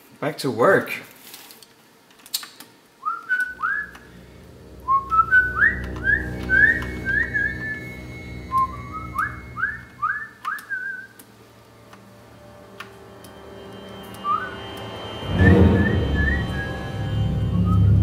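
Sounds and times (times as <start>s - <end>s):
whistled tune: 3.0s - 11.2s, 12.6s - 18.0s
low steady hum: 3.0s - 18.0s.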